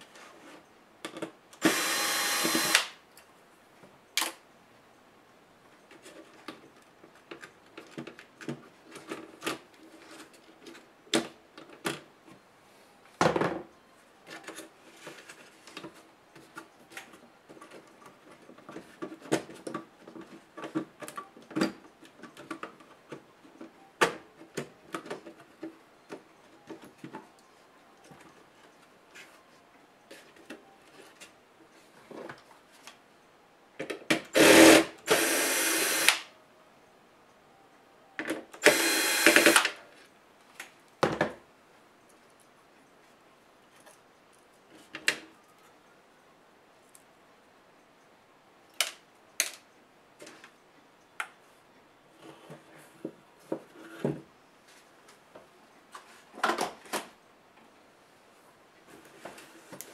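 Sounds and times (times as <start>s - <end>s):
electric screwdriver whirring: 1.6s - 3.0s, 34.4s - 36.3s, 38.6s - 39.8s.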